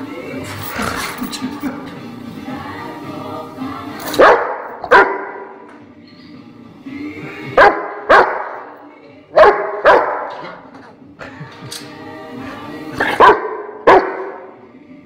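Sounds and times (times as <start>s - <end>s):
dog barking: 4.2s - 5.5s, 7.6s - 8.6s, 9.4s - 10.6s, 13.0s - 14.5s.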